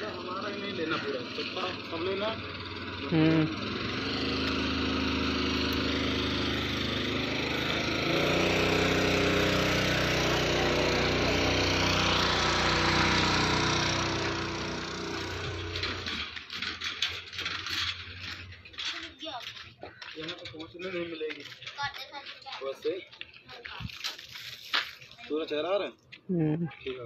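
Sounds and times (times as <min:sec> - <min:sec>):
engine running: 0:00.0 - 0:19.1.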